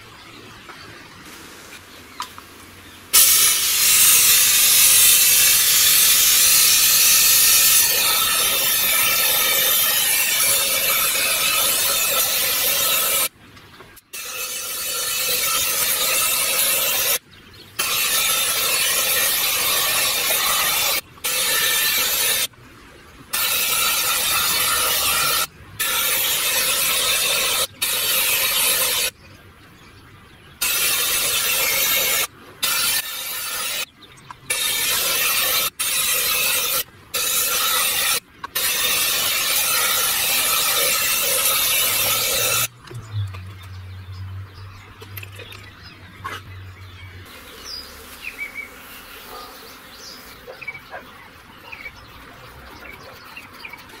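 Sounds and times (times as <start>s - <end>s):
spray gun hissing: 3.2s - 13.3s, 14.2s - 17.2s, 17.8s - 22.5s, 23.3s - 29.1s, 30.6s - 33.9s, 34.5s - 42.7s.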